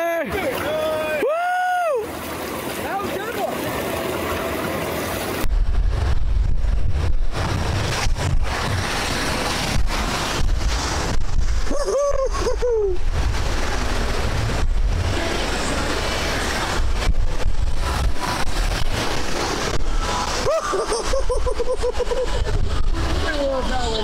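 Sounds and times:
rushing white water: 0.0 - 5.7, 6.8 - 24.0
wind buffeting microphone: 5.3 - 24.0.

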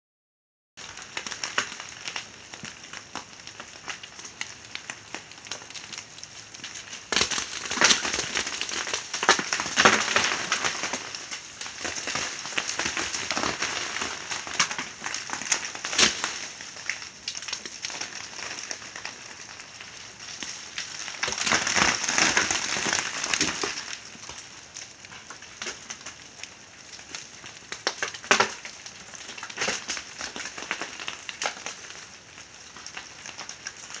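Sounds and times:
ice pieces falling on snow: 6.9 - 19.1, 20.3 - 24.0
sharp ice cracks: 14.6 - 16.5.

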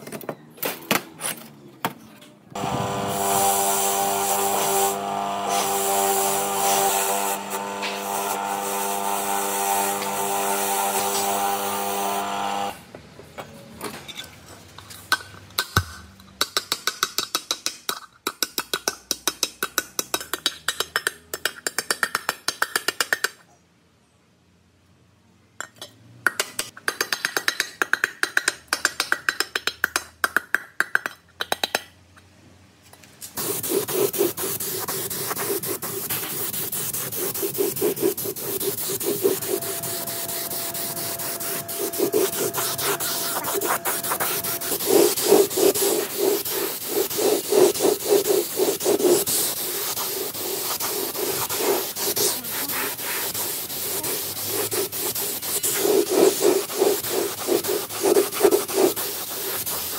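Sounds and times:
spray gun hissing: 2.6 - 12.3, 33.4 - 59.9
rubbing or scraping strokes: 33.3 - 59.9.

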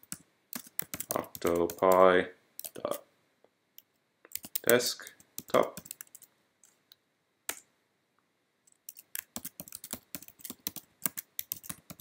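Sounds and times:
typing on computer keyboard: 0.0 - 2.0, 2.6 - 3.0, 4.3 - 6.3, 8.8 - 12.0.

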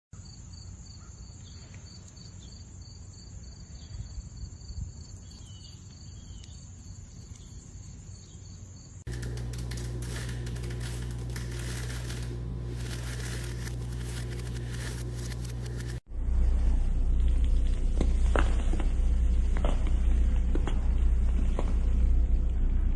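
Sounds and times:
insects trilling: 0.2 - 16.0
low hum with crackling: 4.6 - 22.9
steady high whine: 9.0 - 22.9.

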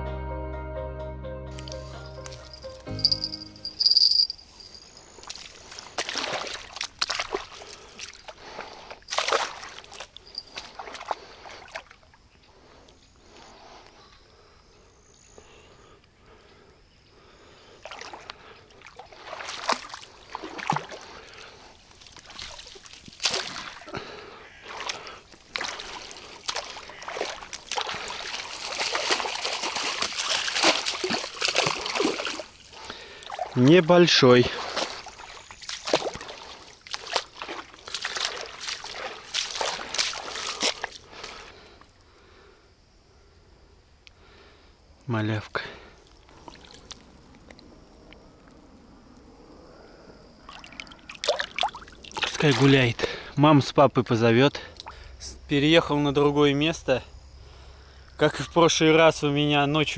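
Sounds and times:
water splashing and sloshing: 3.8 - 13.6, 17.4 - 42.0, 46.0 - 48.8, 50.4 - 53.3, 54.6 - 55.2.

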